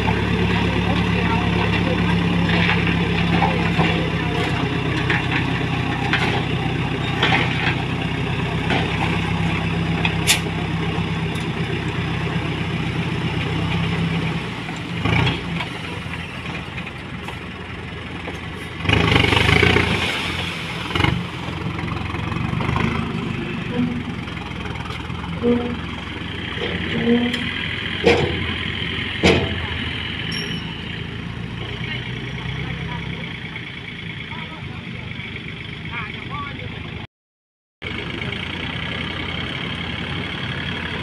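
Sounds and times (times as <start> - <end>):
diesel engine running: 0.0 - 37.1, 37.8 - 41.0
soil sliding out of truck bed: 18.6 - 21.5.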